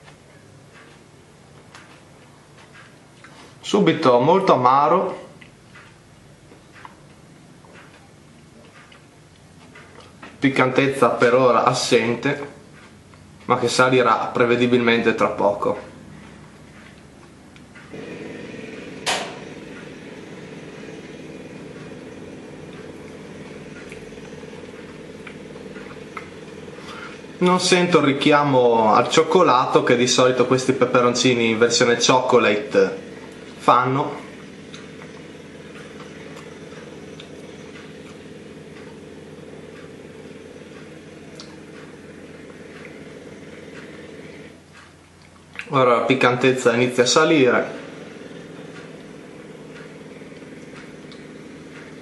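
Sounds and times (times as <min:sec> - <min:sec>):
small motor humming: 0:17.8 - 0:44.7, 0:46.3 - 0:52.0
sharp knock: 0:19.0 - 0:19.4.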